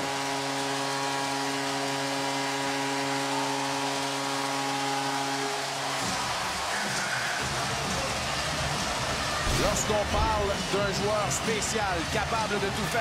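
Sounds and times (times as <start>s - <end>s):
goal horn chord: 0.0s - 6.0s
crowd cheering: 0.0s - 13.0s.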